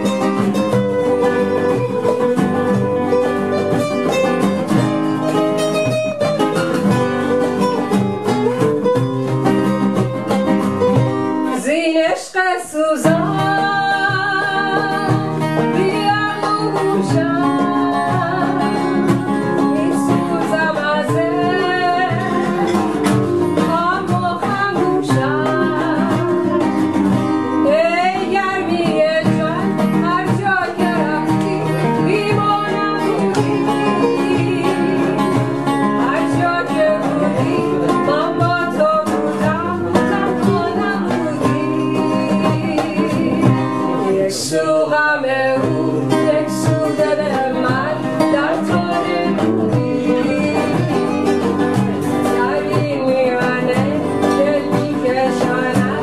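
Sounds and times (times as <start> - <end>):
plucked guitar: 0.0 - 56.0
person singing: 11.5 - 56.0.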